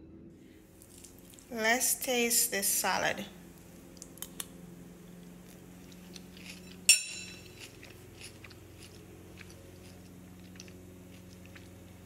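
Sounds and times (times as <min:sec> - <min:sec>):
person chewing with wet mouth clicks: 0:07.5 - 0:12.0.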